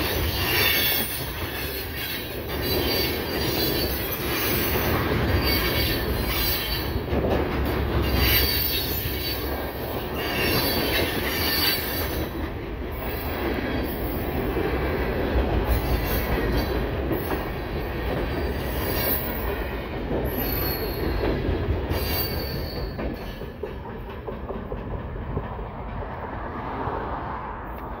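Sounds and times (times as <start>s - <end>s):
train wheels rumbling on rail: 0.0s - 28.0s
high-pitched wheel squeal: 0.1s - 7.0s, 20.3s - 21.2s, 21.9s - 23.4s.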